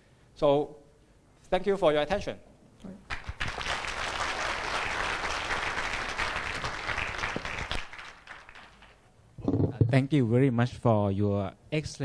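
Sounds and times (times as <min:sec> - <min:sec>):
audience applauding: 0:03.1 - 0:09.0.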